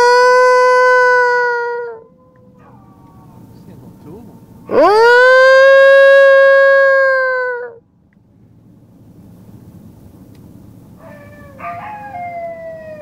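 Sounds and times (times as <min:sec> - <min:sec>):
wild dogs howling: 0:00.0 - 0:07.8, 0:11.0 - 0:13.0
man imitating a howl: 0:04.7 - 0:07.8.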